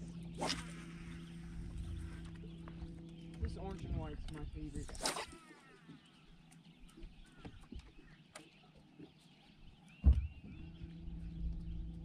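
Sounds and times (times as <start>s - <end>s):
trolling motor humming: 0.0s - 12.0s
loud thump: 10.0s - 10.4s.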